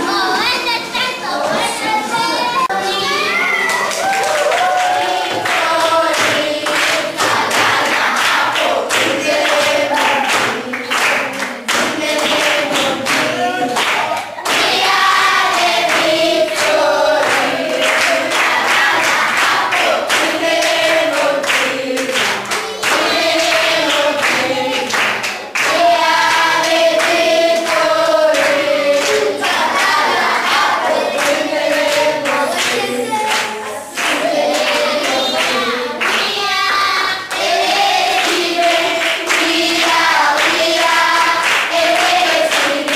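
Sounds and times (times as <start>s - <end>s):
children singing together: 0.0s - 42.9s
hand claps keeping time: 5.3s - 36.4s.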